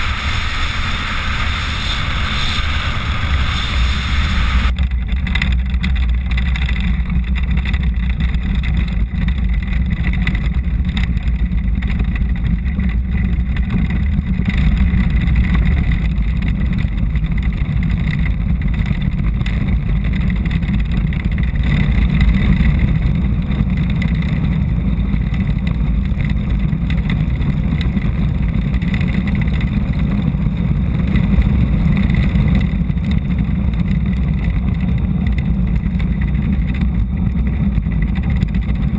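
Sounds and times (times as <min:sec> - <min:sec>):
wind on microphone: 0:00.0 - 0:04.8
land yacht rolling rumble: 0:00.0 - 0:38.9.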